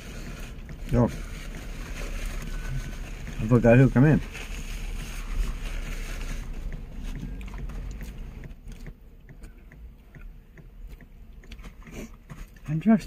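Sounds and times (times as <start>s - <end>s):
person chewing food: 6.6s - 8.9s, 10.9s - 12.6s.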